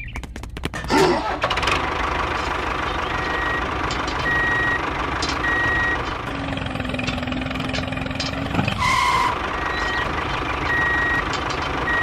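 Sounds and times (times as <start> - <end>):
vehicle engine running: 0.0 - 12.0
reversing alarm beeping: 3.1 - 6.1, 8.8 - 12.0.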